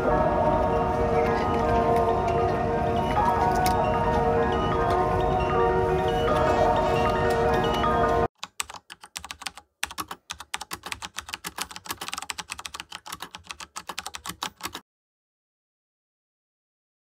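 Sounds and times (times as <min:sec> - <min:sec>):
music: 0:00.0 - 0:08.3
computer keyboard typing: 0:07.1 - 0:14.8.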